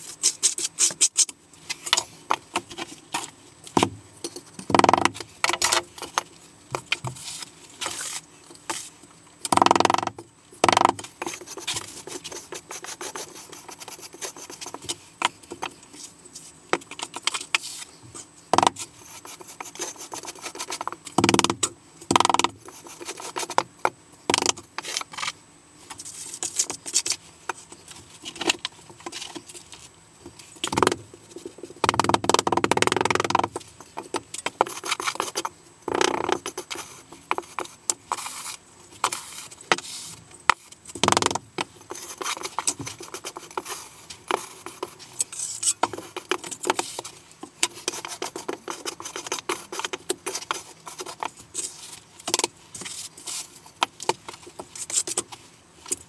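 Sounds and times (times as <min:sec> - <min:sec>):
trowel scraping gritty mortar: 0:41.9 - 0:47.1.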